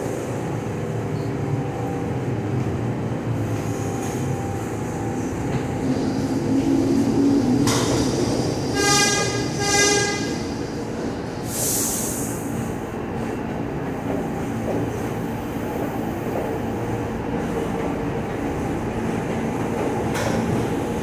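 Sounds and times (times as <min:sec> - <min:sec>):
subway train rumbling: 0:00.0 - 0:21.0
train horn blast: 0:08.7 - 0:10.5
wheel and air hiss: 0:10.8 - 0:12.8.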